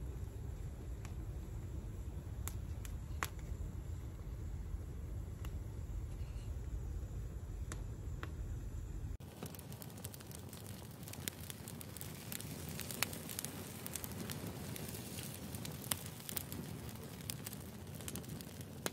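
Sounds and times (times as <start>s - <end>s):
sharp fire pops: 0.0s - 6.9s, 7.5s - 18.9s
wood fire crackling: 0.0s - 18.9s.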